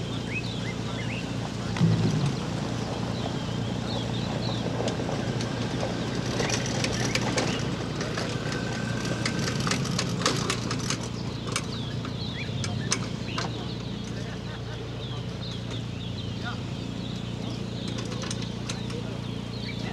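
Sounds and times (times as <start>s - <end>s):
steady low hum: 0.0s - 10.0s
bird chirps: 11.1s - 19.9s.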